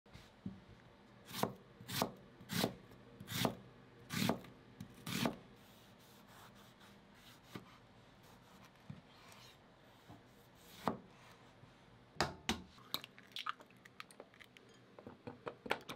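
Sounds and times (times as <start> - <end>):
knife slicing onion: 1.2 - 11.1.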